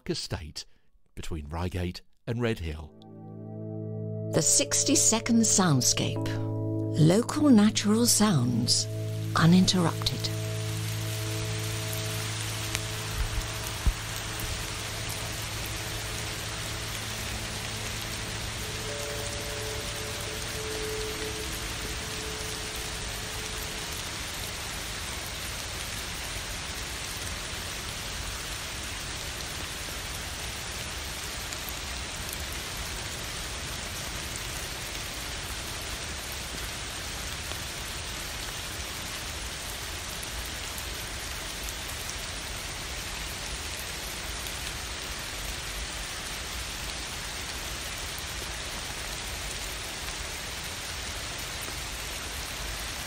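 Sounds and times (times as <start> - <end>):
steady rain hiss: 4.4 - 53.0.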